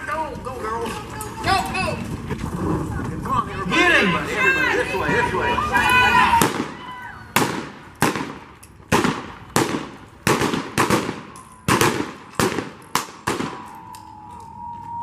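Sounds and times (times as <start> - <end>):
echoing gunshots: 6.4 - 13.8.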